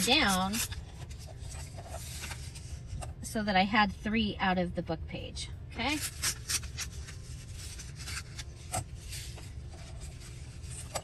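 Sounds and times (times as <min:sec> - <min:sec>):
paper rustling and sliding: 0:00.0 - 0:03.1, 0:06.0 - 0:11.0.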